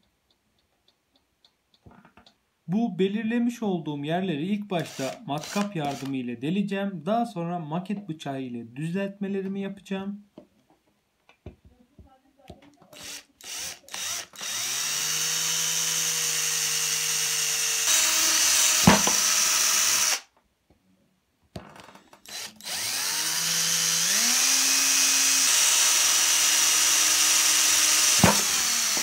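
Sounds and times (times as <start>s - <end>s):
electric drill drilling: 4.8s - 6.2s, 13.0s - 20.3s, 22.2s - 29.0s.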